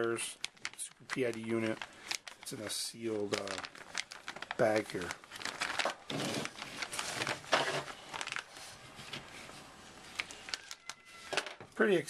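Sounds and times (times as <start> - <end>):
plastic bag crinkling: 0.0 - 11.5.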